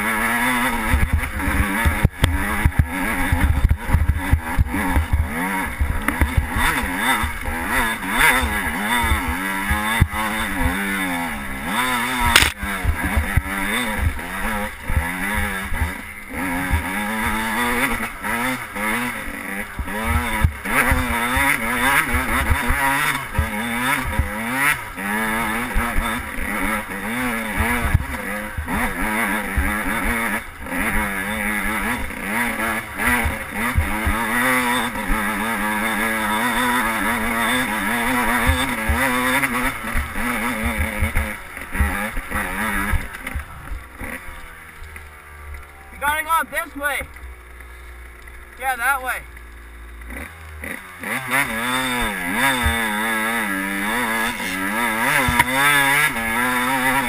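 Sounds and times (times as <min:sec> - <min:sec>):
dirt bike engine revving: 0:00.0 - 0:57.0
sharp knock: 0:12.3 - 0:12.6.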